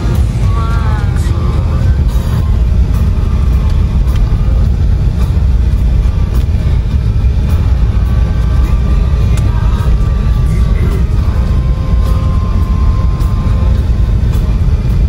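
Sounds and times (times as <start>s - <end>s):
car driving on unpaved road: 0.0s - 15.0s.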